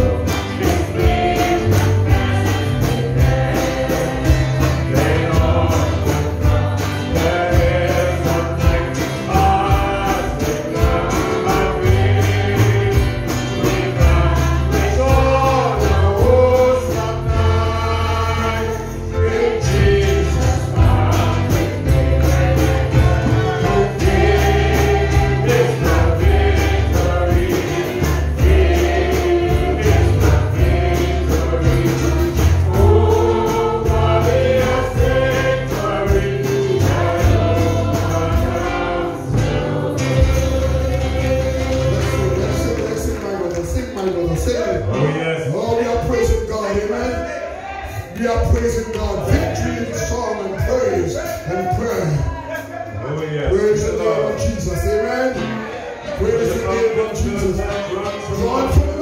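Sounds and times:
amplified backing music with bass: 0.0 - 47.0
group singing gospel: 0.0 - 59.0.

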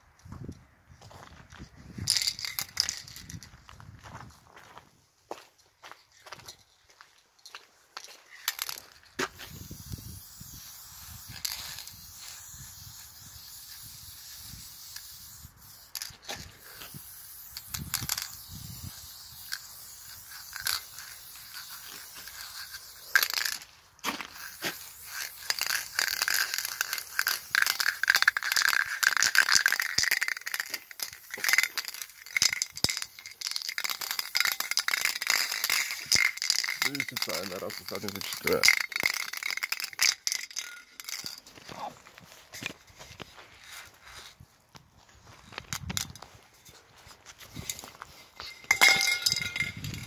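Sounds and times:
spray can ball rattling: 2.0 - 3.5, 7.4 - 41.7, 45.5 - 46.7, 47.4 - 50.0
spray can hissing: 8.5 - 41.4.

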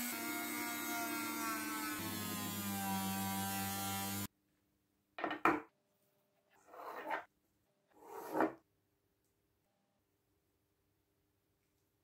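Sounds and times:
metal scraping across wood: 6.6 - 7.3, 7.9 - 8.6.

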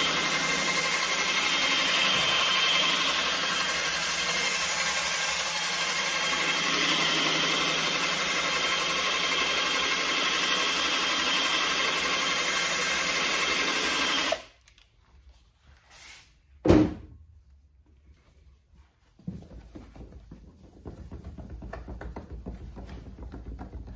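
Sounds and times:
cordless drill spinning polishing pad: 0.0 - 14.5.

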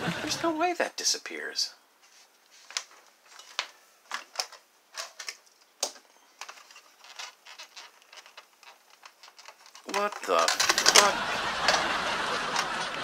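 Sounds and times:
plastic toy parts clicking: 3.3 - 11.8.

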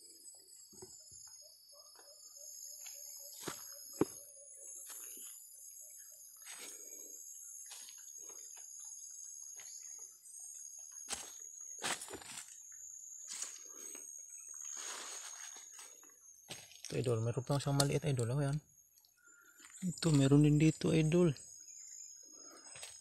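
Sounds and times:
insects chirring: 0.0 - 23.0
footsteps on leaves and stones: 2.8 - 4.2, 11.1 - 12.6, 14.6 - 17.0.

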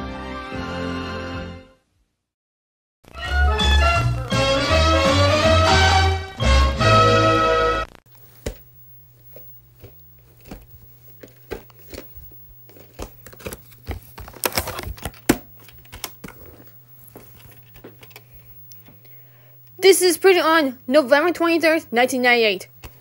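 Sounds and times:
faint steady low hum: 8.1 - 23.0
crinkly rustling: 9.1 - 18.7.

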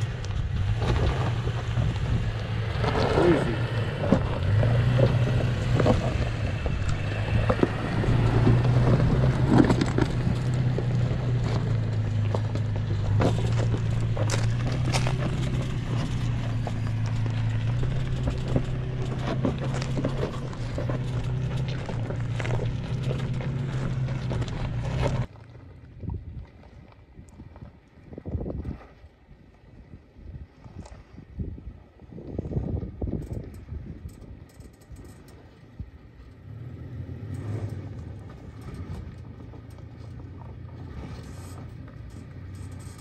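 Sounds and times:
low engine drone: 0.0 - 28.0, 31.0 - 43.0
rocks cracking under tyres: 0.1 - 25.4.

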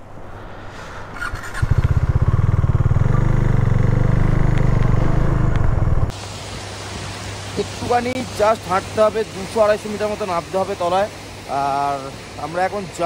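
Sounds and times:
vehicle engine running: 1.4 - 6.2.

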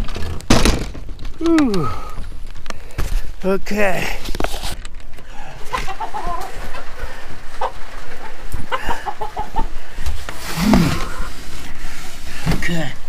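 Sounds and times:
knocks and rustling: 0.0 - 3.4
hens clucking: 5.2 - 11.8.

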